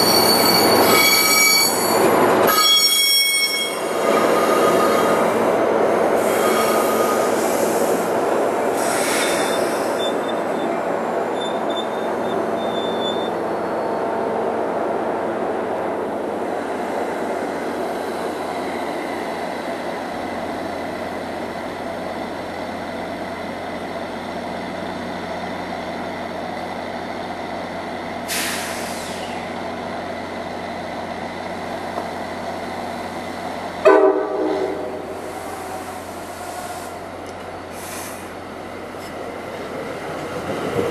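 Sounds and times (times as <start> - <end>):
train rumbling: 0.0 - 40.9
air brake hiss: 8.7 - 10.2, 28.2 - 29.5, 35.1 - 37.1, 37.7 - 38.4.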